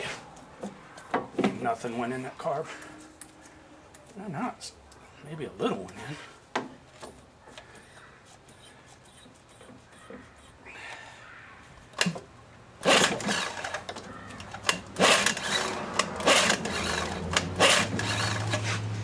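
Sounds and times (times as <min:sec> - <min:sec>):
outboard recoil starter whirring: 0:12.8 - 0:13.9, 0:14.6 - 0:18.7.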